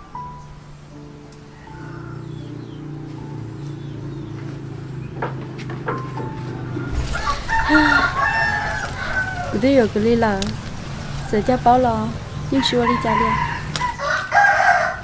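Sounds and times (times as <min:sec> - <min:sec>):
rooster crowing: 0:01.5 - 0:03.6, 0:06.6 - 0:09.8, 0:11.1 - 0:15.0.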